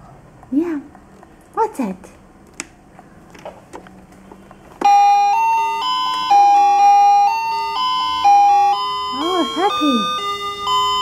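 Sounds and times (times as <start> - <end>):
electronic beeping chime melody: 4.8 - 11.0.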